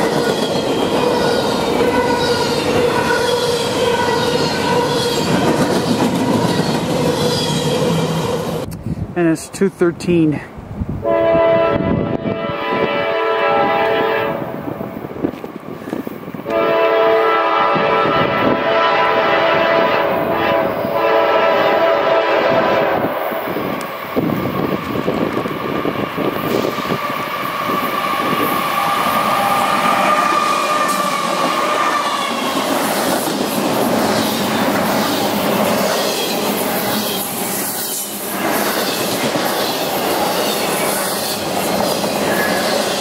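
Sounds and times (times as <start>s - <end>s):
locomotive air horn blasts: 11.0s - 14.5s, 16.5s - 22.9s.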